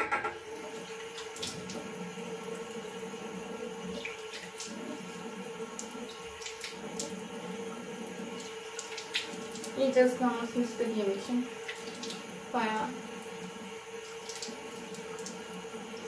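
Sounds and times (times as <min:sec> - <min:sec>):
tap running into sink: 0:00.0 - 0:02.0
water splashes: 0:00.4 - 0:16.0.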